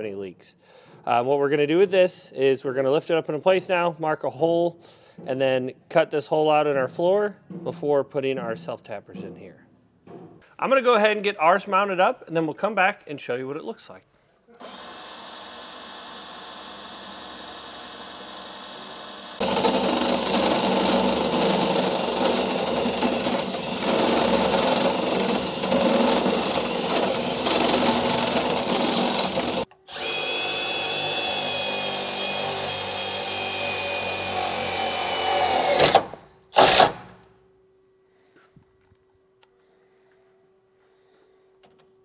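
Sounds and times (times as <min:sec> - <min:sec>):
cordless drill drilling: 0:14.6 - 0:37.1
step bit cutting hole: 0:14.6 - 0:37.1
drill driving screws: 0:14.6 - 0:37.2.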